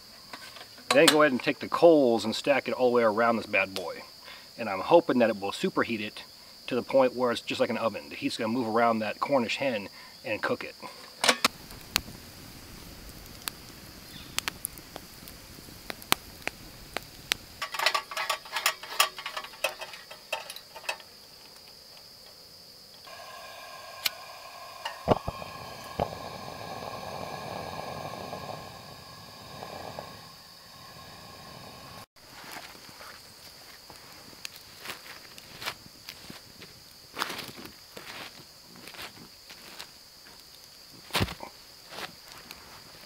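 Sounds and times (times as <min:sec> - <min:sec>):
lantern burning with steady hiss: 0:00.0 - 0:43.0
gas hissing: 0:11.2 - 0:21.0, 0:23.0 - 0:32.1
sharp igniter clicks: 0:11.2 - 0:32.0
metal clicks and clinks of lantern: 0:17.6 - 0:21.8.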